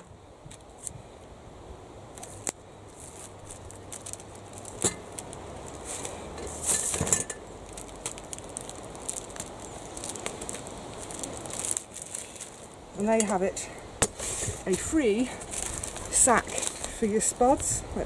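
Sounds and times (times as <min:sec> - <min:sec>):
parcel tape: 0:02.1 - 0:12.7
newspaper rustling: 0:02.2 - 0:13.4, 0:14.0 - 0:17.6.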